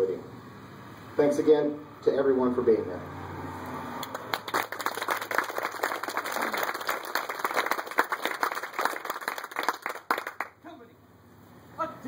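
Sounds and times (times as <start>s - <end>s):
audience applauding: 4.0s - 10.6s.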